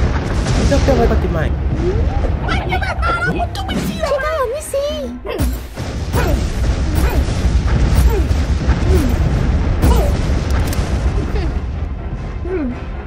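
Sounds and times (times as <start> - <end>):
deep cartoon rumble: 5.8 - 13.0.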